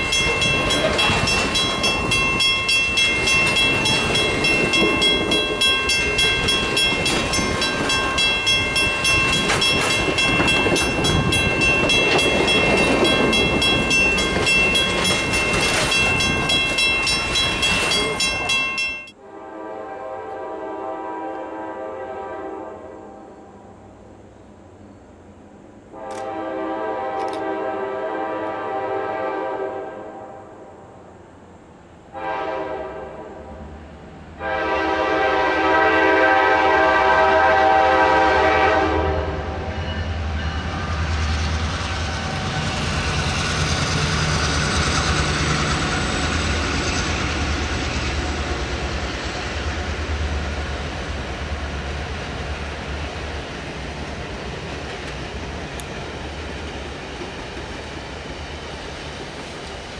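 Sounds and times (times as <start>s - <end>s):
wheels clacking on rail joints: 0.0s - 19.1s
train coaches rolling: 0.0s - 19.2s, 33.7s - 59.9s
locomotive air horn blasts: 19.2s - 23.3s, 25.9s - 30.6s, 32.1s - 33.8s, 34.4s - 39.7s.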